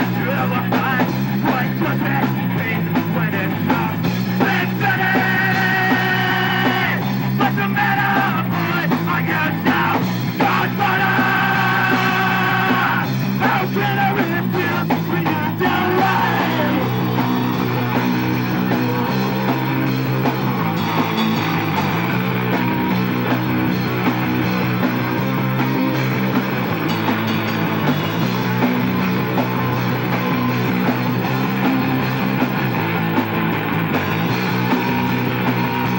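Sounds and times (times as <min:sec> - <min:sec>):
punk rock band playing: 0:00.0 - 0:35.9
person yelling vocals: 0:04.4 - 0:17.4.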